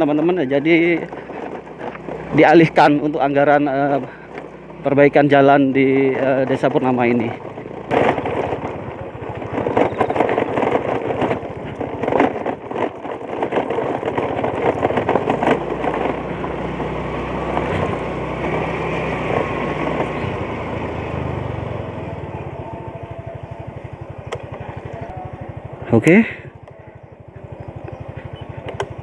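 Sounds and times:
scooter engine running: 0.0 - 29.0
knocks and rattles from bumps: 5.9 - 20.8.

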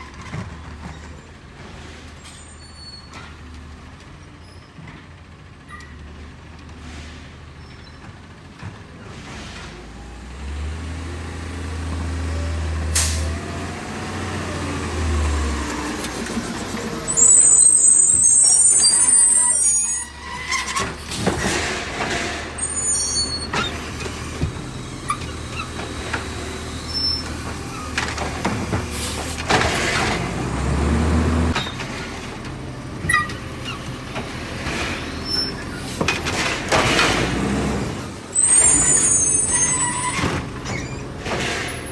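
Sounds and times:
garbage truck engine drone: 8.0 - 41.9
air brake hiss: 13.0 - 13.3.

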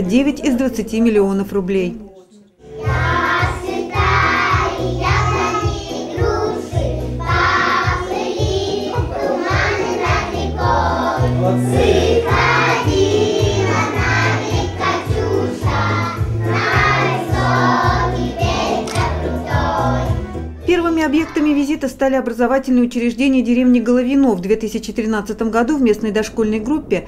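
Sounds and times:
children singing together: 2.6 - 20.4.

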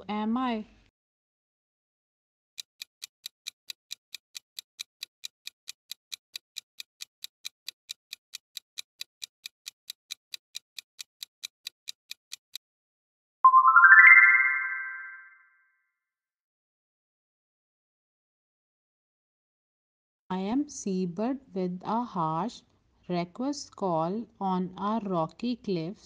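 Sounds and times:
clock-like ticking: 2.6 - 12.6
bright rising chime: 13.5 - 15.4.

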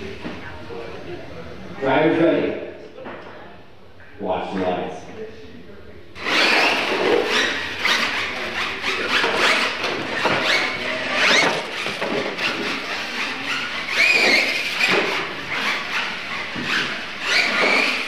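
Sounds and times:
electric motors whining: 6.2 - 18.0
tyres squealing: 6.2 - 18.0.

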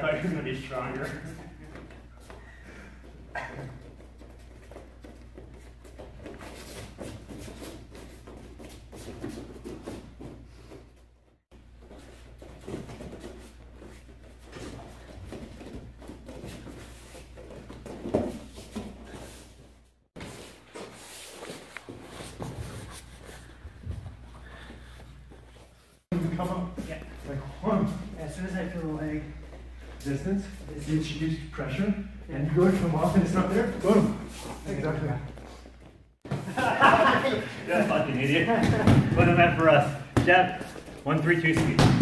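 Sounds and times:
bare feet shuffling on mats: 0.1 - 30.8, 37.7 - 42.0
bodies scuffling on mats: 11.6 - 26.0.

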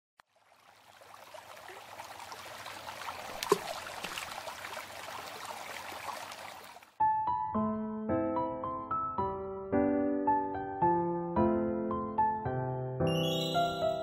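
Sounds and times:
water splash: 0.2 - 7.0
water trickling: 0.2 - 7.0.

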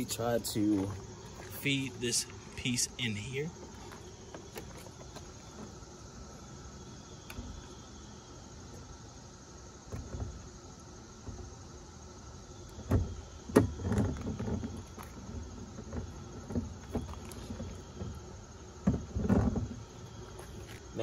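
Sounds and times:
rubbing and scraping: 12.8 - 20.9.

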